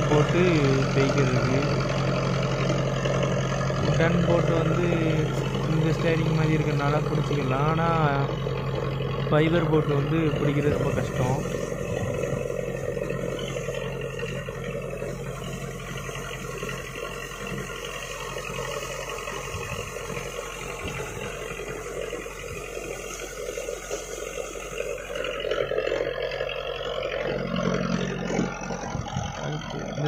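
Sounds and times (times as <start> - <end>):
boat engine running: 0.0 - 30.0
water splashing along hull: 10.8 - 26.9.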